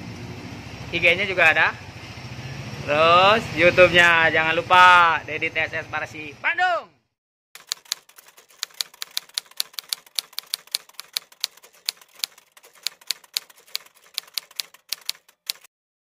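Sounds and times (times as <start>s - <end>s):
typewriter keystroke clicks: 7.6s - 15.7s.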